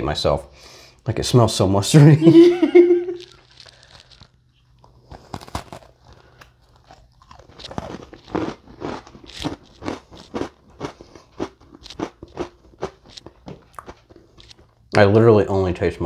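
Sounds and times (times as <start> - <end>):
crunchy chewing: 3.1 - 15.0
biting into a cookie: 3.2 - 14.8.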